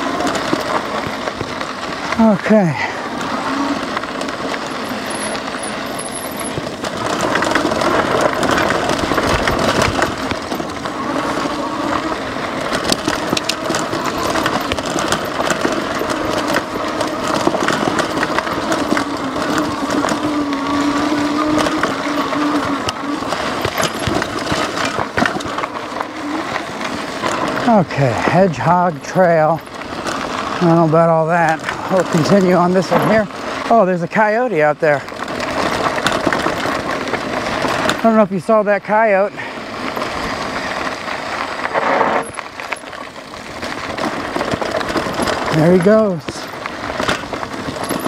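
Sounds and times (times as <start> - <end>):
electric motor whine: 0.0 - 27.7
bike rattling and clicking: 0.0 - 48.0
tyres on gravel: 0.0 - 48.0.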